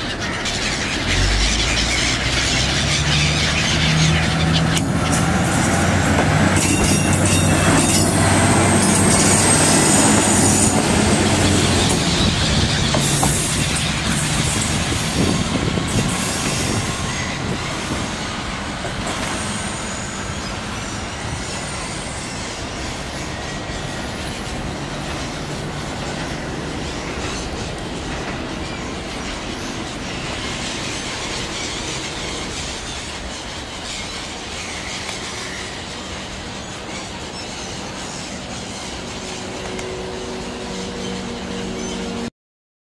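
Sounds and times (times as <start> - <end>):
diesel railcar engine throbbing: 0.0 - 42.3
train wheels squealing: 0.0 - 42.3.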